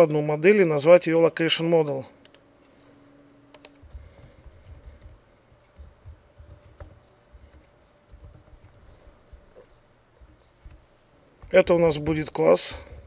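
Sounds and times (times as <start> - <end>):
computer keyboard typing: 3.5 - 9.4, 10.2 - 10.8, 11.4 - 12.3.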